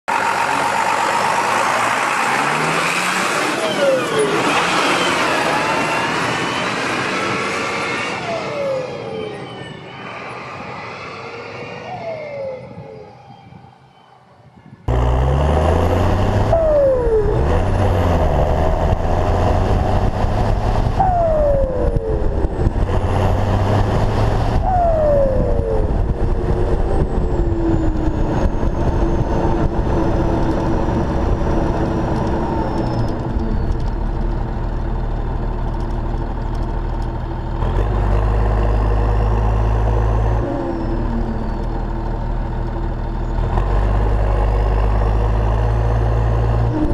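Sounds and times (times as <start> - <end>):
low tractor engine drone: 0.1 - 46.9
turbocharger whistle: 0.4 - 14.9, 16.4 - 18.8, 20.8 - 22.9, 24.2 - 30.8.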